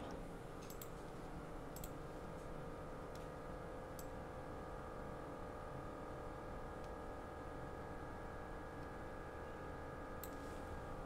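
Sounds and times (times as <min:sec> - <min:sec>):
computer mouse clicks: 0:00.0 - 0:01.0, 0:01.7 - 0:02.0, 0:10.2 - 0:10.5
electrical fan hum: 0:00.0 - 0:11.0.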